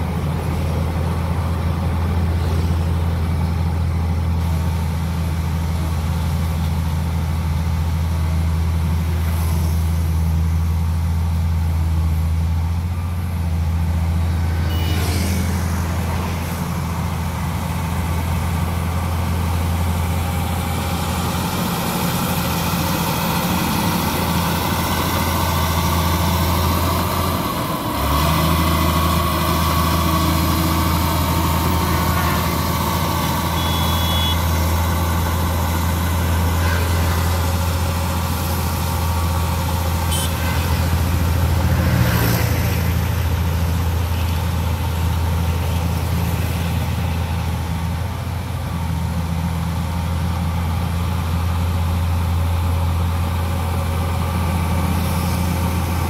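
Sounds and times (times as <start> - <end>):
bulldozer diesel engine running: 0.0 - 56.0.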